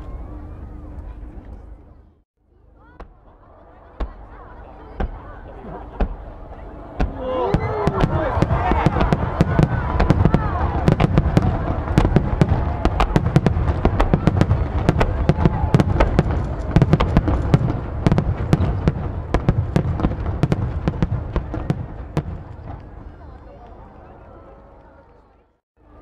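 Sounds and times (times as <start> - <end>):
low rumble and crackle: 0.0 - 26.0
fireworks bursting: 4.0 - 23.1.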